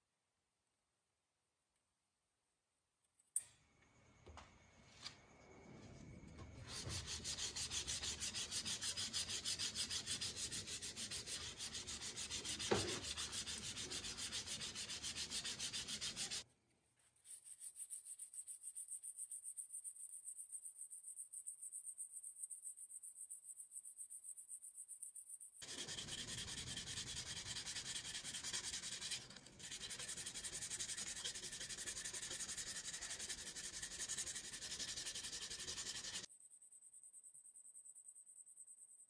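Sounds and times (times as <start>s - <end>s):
sanding a steel bar: 6.6s - 16.4s, 25.6s - 36.3s.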